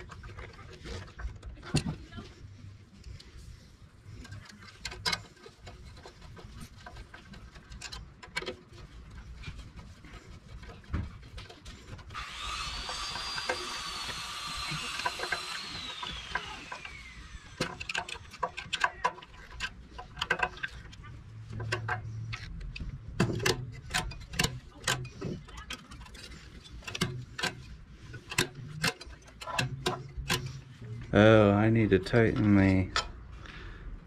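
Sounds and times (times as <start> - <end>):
hand tools clicking and scraping: 0.0 - 33.8.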